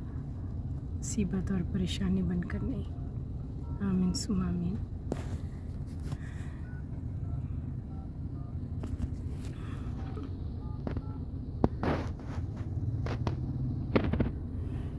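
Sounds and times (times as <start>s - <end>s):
car interior rumble: 0.0s - 14.9s.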